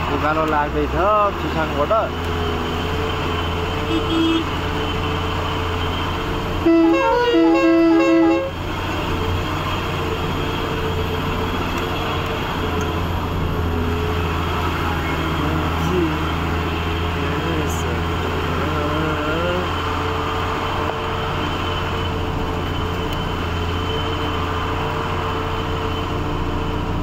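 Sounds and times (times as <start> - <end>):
musical horn tune: 6.6 - 8.6
truck engine under load: 8.4 - 27.0.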